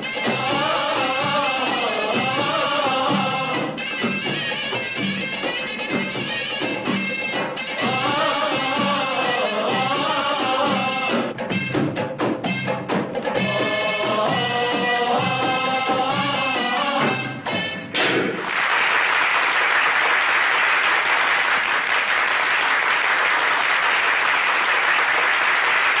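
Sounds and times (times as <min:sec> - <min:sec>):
drum strikes: 0:00.0 - 0:18.5
folk music with drums: 0:00.0 - 0:18.5
audience applauding: 0:18.1 - 0:26.0.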